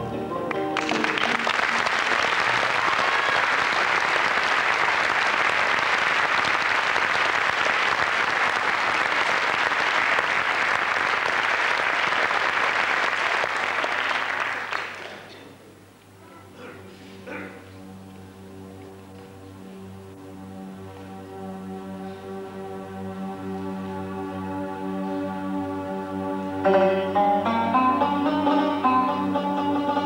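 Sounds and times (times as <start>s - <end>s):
music: 0.0s - 3.8s, 16.2s - 30.0s
audience applauding: 0.5s - 15.4s.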